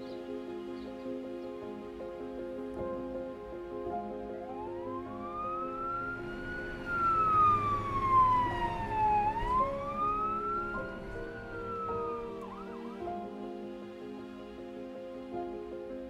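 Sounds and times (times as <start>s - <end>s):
soft background music: 0.0s - 16.0s
emergency siren wailing: 4.5s - 12.9s.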